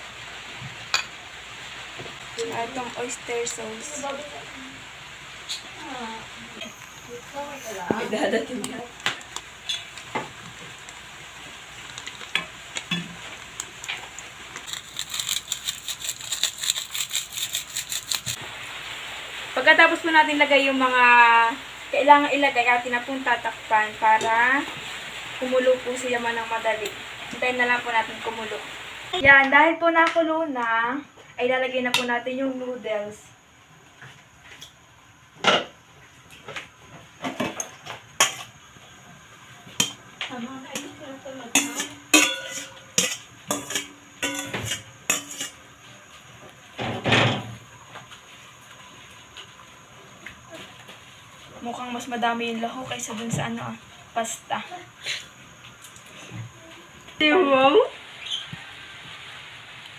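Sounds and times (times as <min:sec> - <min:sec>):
crisp crinkling ticks: 0:11.8 - 0:18.4
spoon clinking on metal bowl: 0:41.6 - 0:45.5.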